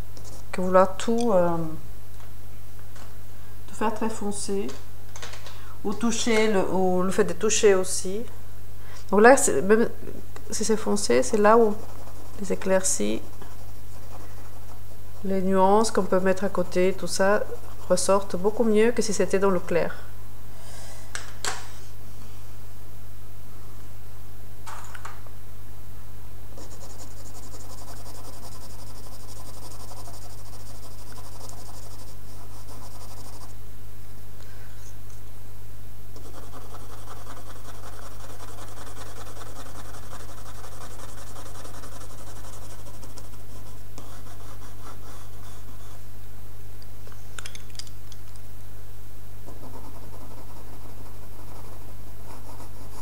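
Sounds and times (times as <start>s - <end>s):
steady low hum: 0.0s - 53.0s
pencil scratching on paper: 11.0s - 16.1s, 26.6s - 33.6s, 36.2s - 46.0s, 49.5s - 53.0s.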